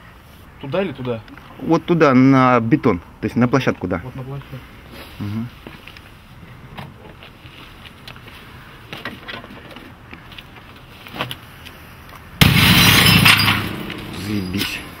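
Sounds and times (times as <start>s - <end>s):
handling clicks and rustles: 6.8s - 12.3s
monitor smashing onto concrete: 12.4s - 15.0s.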